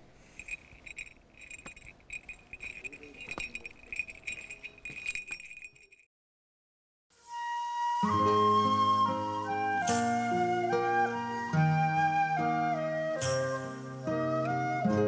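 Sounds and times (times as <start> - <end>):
small bell jingling: 0.0 - 6.1.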